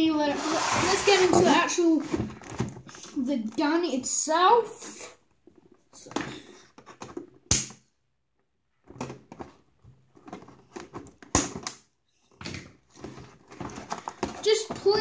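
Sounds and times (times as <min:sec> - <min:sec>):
cardboard and plastic rustling: 0:00.4 - 0:03.7, 0:08.9 - 0:11.3, 0:12.5 - 0:15.0.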